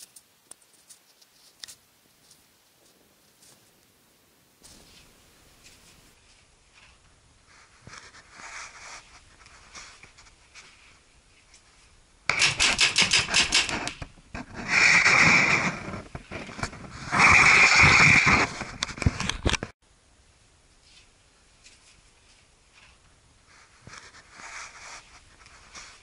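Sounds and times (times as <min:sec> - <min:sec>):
paintball markers firing: 0:12.3 - 0:14.0.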